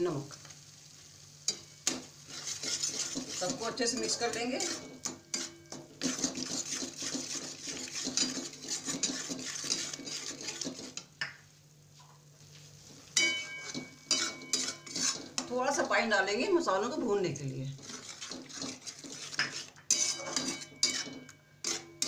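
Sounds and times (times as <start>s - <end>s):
metal spatula scraping steel pan: 1.5s - 11.1s, 13.2s - 16.0s, 17.8s - 22.0s.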